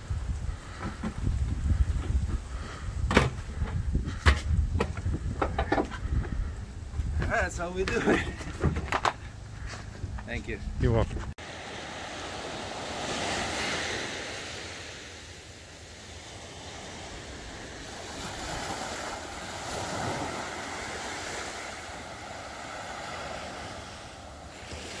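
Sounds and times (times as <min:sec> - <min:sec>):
wind on microphone: 0:00.0 - 0:07.4
small waves breaking on sand: 0:11.4 - 0:25.0.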